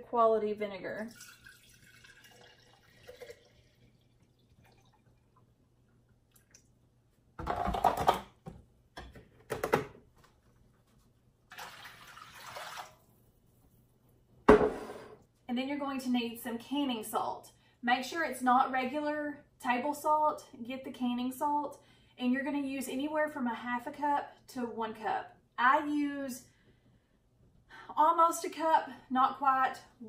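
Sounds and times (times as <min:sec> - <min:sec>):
liquid pouring: 0:01.0 - 0:06.8, 0:11.5 - 0:13.2.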